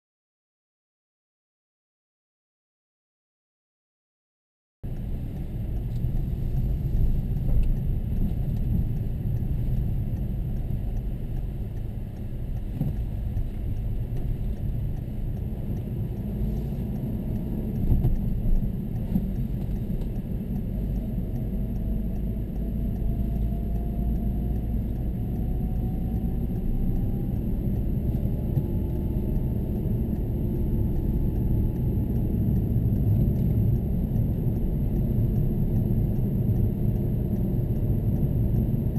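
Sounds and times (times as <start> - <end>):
engine and road noise rumble: 4.8 - 38.9
engine tone rising in pitch: 20.4 - 36.6.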